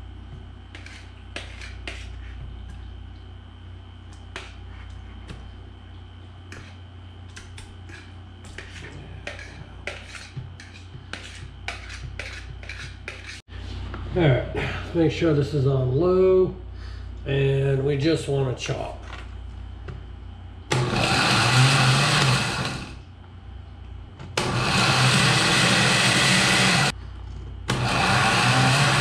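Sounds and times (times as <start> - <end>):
steady low hum: 0.0 - 21.4, 22.6 - 24.6, 26.9 - 27.8
food scraped into blender jar: 0.7 - 2.4, 7.4 - 13.4.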